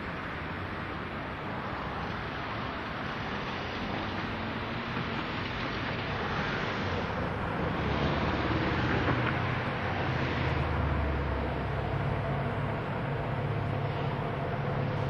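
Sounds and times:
diesel locomotive engine drone: 0:00.0 - 0:15.0.

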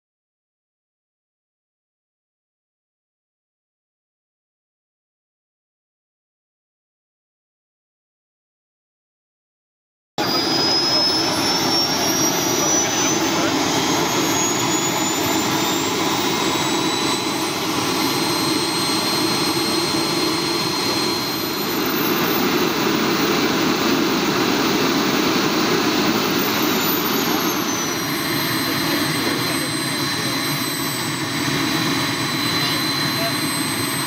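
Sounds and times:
model gas turbine whine: 0:10.2 - 0:34.0.

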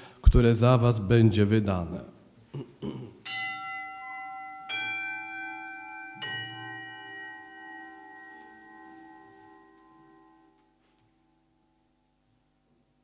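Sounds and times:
bell ringing: 0:03.3 - 0:10.8.

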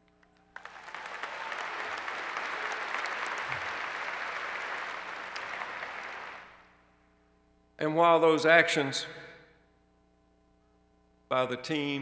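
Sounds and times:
large crowd applauding: 0:00.3 - 0:06.7.

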